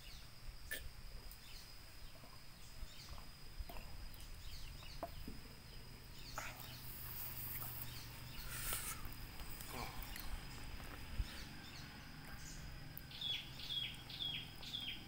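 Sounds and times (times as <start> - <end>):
bird chirps: 0.0 - 15.0
rustle of movement: 1.3 - 15.0
thin high whine: 6.0 - 13.7.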